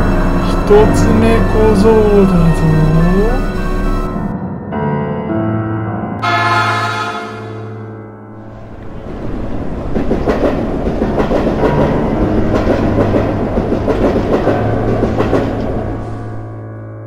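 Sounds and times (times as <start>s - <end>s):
background music: 0.0s - 17.0s
train wheels clattering over rails: 8.6s - 16.5s.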